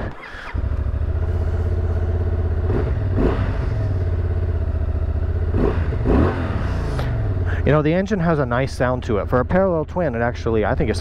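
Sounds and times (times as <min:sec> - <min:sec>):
engine throttle blips: 0:00.0 - 0:11.0
motorcycle engine idling: 0:00.4 - 0:11.0.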